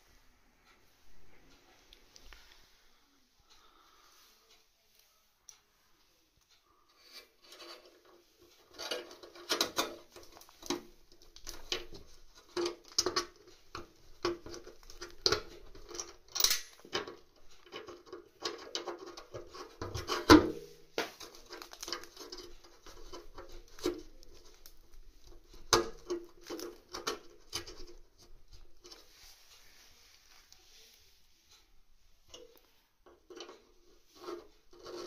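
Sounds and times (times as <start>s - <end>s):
plumbing parts clicking and rattling: 6.9s - 20.5s, 21.1s - 29.2s, 32.3s - 35.0s.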